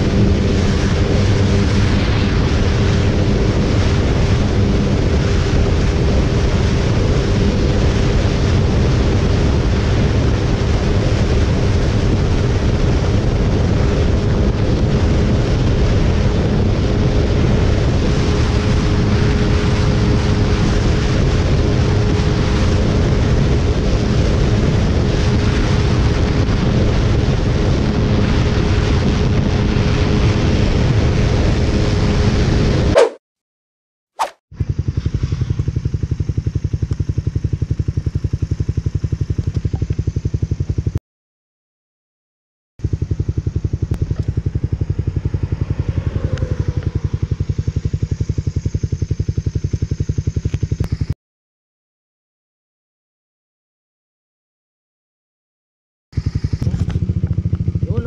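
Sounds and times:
wind buffeting on microphone: 0.0s - 33.0s, 42.9s - 51.1s
motorcycle engine at high revs: 0.0s - 33.2s, 34.6s - 41.0s, 42.8s - 51.2s, 56.2s - 58.0s.

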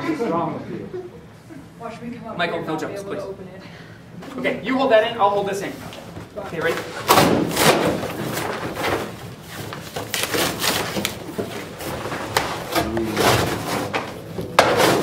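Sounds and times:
packaging scraping and rubbing: 7.4s - 15.0s.

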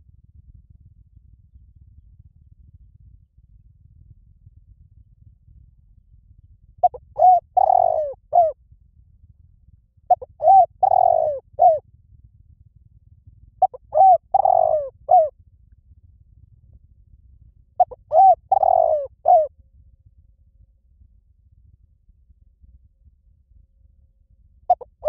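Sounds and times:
dove cooing: 6.8s - 8.6s, 10.1s - 11.8s, 13.6s - 15.3s, 17.8s - 19.5s, 24.7s - 25.0s.

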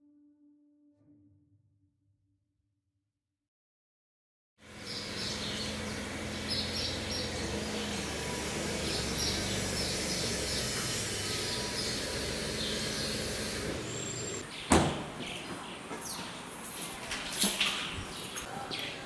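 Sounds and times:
car engine running: 4.6s - 14.4s
birds chirping faintly: 4.7s - 19.0s
knock: 14.7s - 15.1s.

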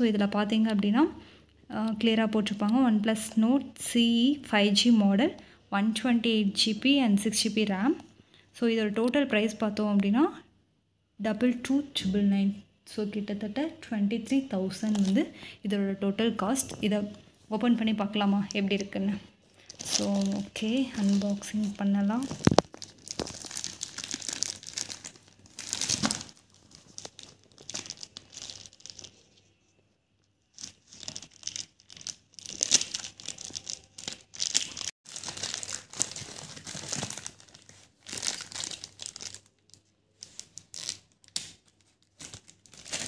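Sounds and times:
plastic bag crinkling and tearing: 19.5s - 29.4s, 30.5s - 43.0s.

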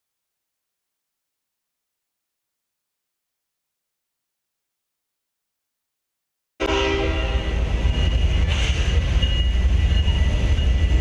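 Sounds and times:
train horn blast: 6.6s - 7.8s
diesel locomotives rumbling past: 6.6s - 11.0s.

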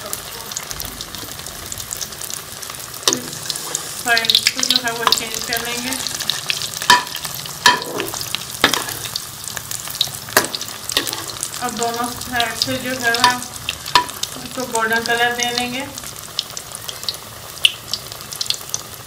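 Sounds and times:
oil sizzling and crackling: 0.0s - 19.0s
metal spoon clinking on pan: 6.9s - 9.1s, 13.2s - 14.2s.

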